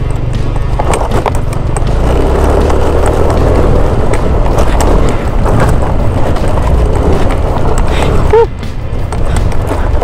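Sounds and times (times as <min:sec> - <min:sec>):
clicks and rattles from bumps: 0:00.0 - 0:10.0
scooter engine humming: 0:00.0 - 0:10.0
wind rushing over microphone: 0:03.2 - 0:10.0.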